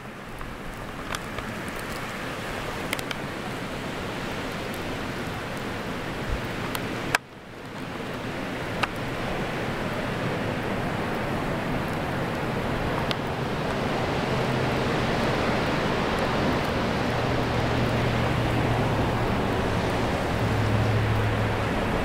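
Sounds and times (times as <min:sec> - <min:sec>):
snowstorm wind blowing: 0:00.0 - 0:22.0.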